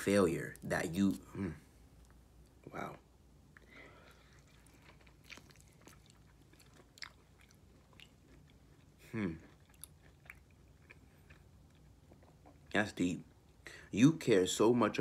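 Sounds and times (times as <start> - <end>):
person chewing: 3.5 - 12.7.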